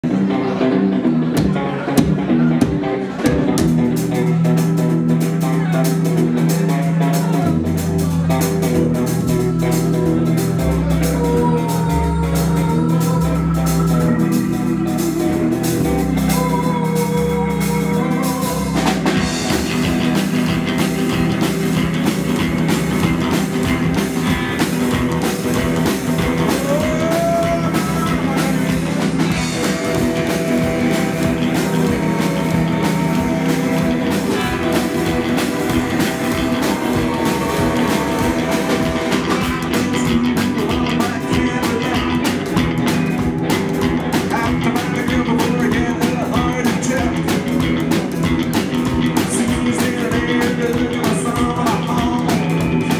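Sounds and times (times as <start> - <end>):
rockabilly band playing: 0.0 - 52.9
upright bass line: 0.0 - 52.9
drums and cymbals: 1.2 - 52.9.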